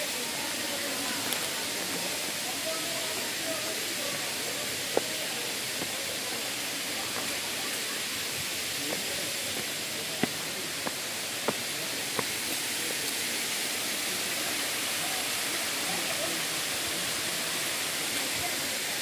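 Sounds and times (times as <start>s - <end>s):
waterfall rushing hiss: 0.0s - 19.0s
footsteps on rocky path: 4.1s - 7.6s, 8.2s - 12.6s.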